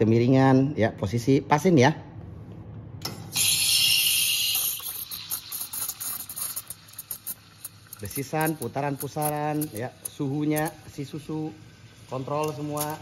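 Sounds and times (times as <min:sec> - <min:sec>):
steam wand hissing in milk: 0:03.4 - 0:13.0
milk crackling: 0:04.0 - 0:13.0.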